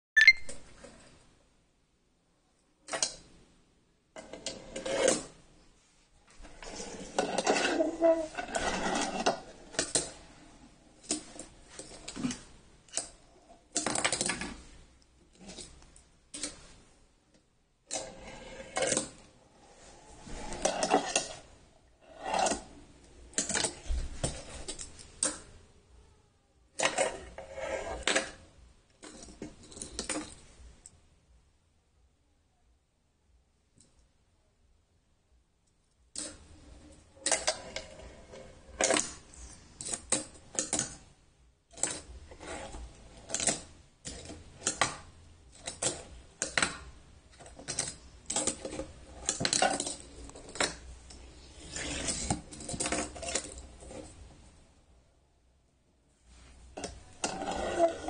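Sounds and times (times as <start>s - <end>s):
fingerboard wheels rolling: 6.4s - 10.2s, 18.0s - 22.7s, 26.8s - 28.4s, 41.9s - 45.0s, 51.5s - 54.2s, 56.8s - 58.0s
fingerboard grinding on edge: 57.2s - 58.0s.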